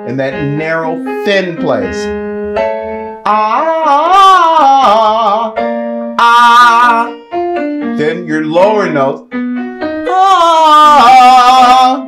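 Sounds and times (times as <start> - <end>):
man singing vocal exercise: 0.0 - 2.1, 3.2 - 7.3, 8.0 - 9.2, 10.0 - 12.0
piano chords: 0.0 - 12.0.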